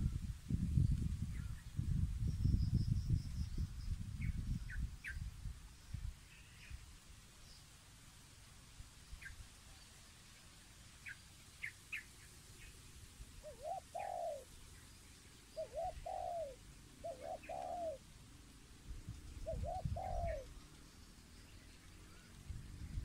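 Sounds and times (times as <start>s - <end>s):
small birds chirping: 9.0s - 23.0s
dove cooing: 13.4s - 14.5s, 15.6s - 18.1s, 19.4s - 20.6s.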